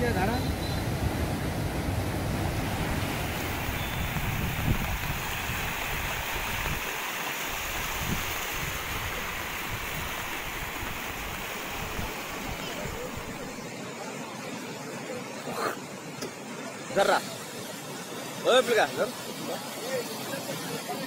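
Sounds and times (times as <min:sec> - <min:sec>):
floodwater rushing: 0:00.0 - 0:21.0
wind rumbling on microphone: 0:00.1 - 0:13.5.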